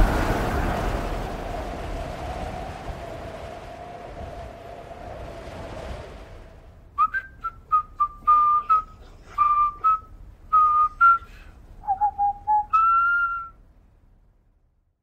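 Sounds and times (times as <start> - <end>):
person whistling a melody: 7.0 - 13.6.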